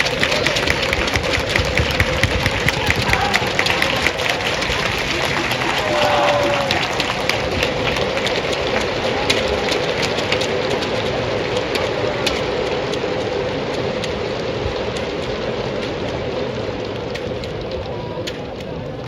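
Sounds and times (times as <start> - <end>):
sharp claps close by: 0.0 - 14.3
crowd applauding: 0.0 - 19.0.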